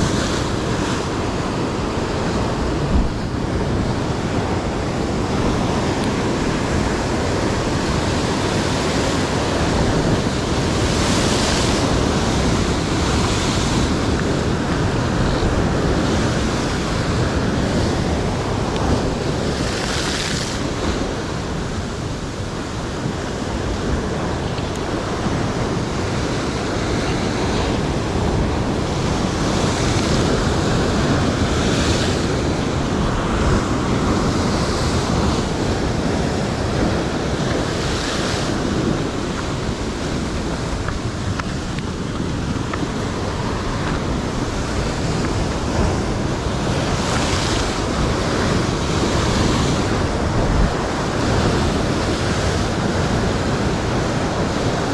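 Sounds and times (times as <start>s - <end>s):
surf breaking against rocks: 0.0s - 54.9s.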